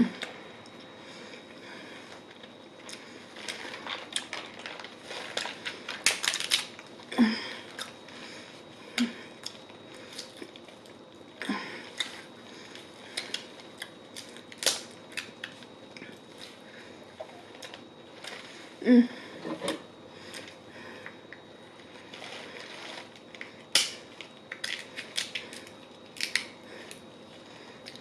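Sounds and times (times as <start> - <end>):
crab shells cracking: 5.4 - 6.8, 13.2 - 15.6, 23.7 - 26.6.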